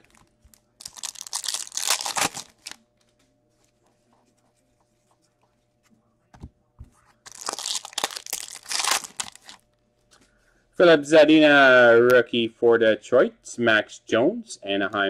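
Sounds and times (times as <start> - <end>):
foil packs tearing and crinkling: 0.8 - 2.8, 7.3 - 9.6.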